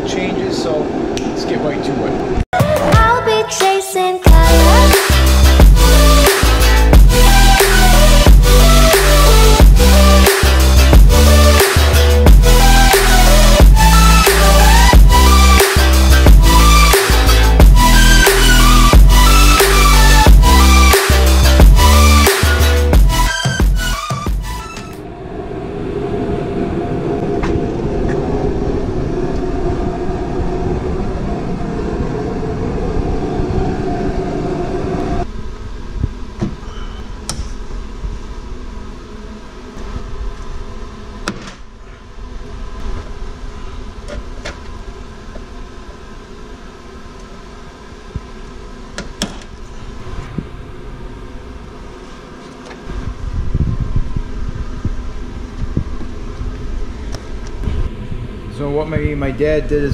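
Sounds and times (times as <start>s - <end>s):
steady low rumble: 4.3s - 23.3s, 25.0s - 36.4s, 49.6s - 59.9s.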